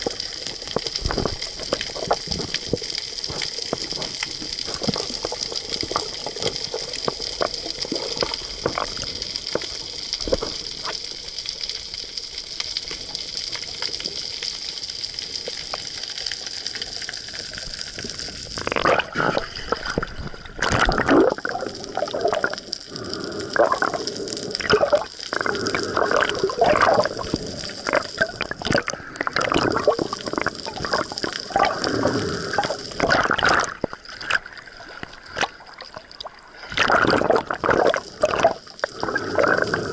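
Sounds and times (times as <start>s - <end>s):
choppy water splashing: 0.0s - 11.5s, 17.2s - 39.9s
faint underwater clicks: 0.0s - 39.9s
underwater hiss: 12.8s - 39.9s.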